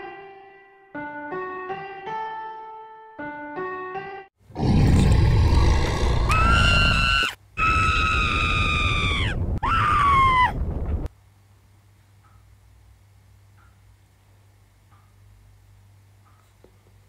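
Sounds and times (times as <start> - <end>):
high-pitched screaming: 6.2 - 10.6.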